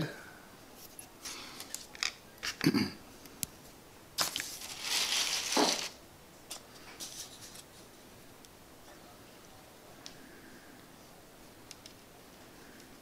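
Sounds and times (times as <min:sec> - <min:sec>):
dirt rustling and scraping: 0:04.2 - 0:07.7.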